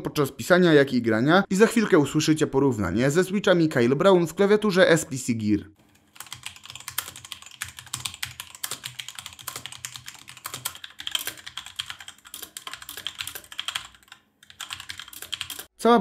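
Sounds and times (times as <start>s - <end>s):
fast typing on mechanical keyboard: 6.0s - 15.7s.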